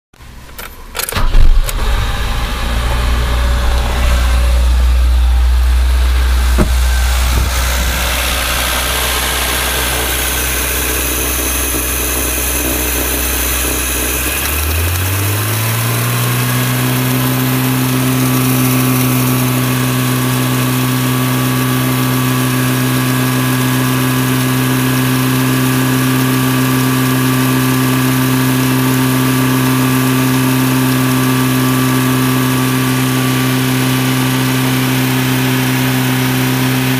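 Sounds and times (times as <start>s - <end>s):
car engine idling: 0.2s - 23.6s.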